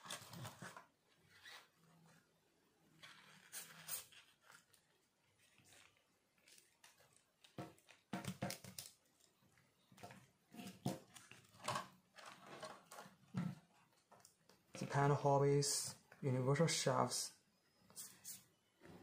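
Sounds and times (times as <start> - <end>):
plastic parts clicking and knocking: 7.4 - 9.1, 9.9 - 14.8.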